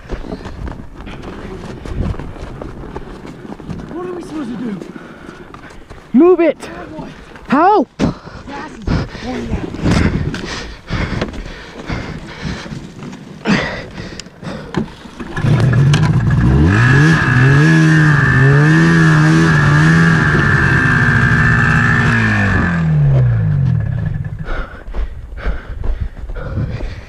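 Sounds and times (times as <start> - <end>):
snowmobile engine revving: 15.2 - 24.4.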